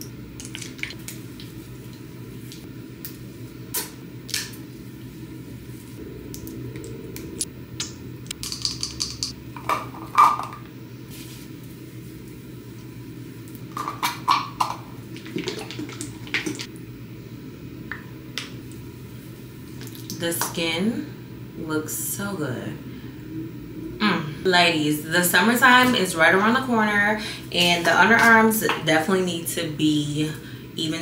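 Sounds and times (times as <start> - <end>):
low background sound: 4.8 - 9.6.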